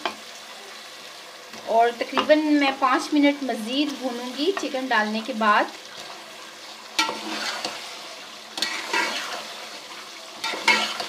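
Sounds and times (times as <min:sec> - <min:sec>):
chicken sizzling in a pot: 0:00.0 - 0:11.0
spoon stirring and scraping: 0:07.0 - 0:09.8, 0:10.4 - 0:11.0.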